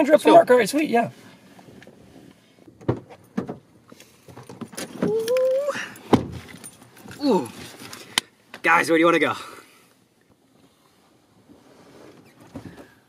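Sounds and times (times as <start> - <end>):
car door thump: 2.8 - 3.6, 6.1 - 6.5.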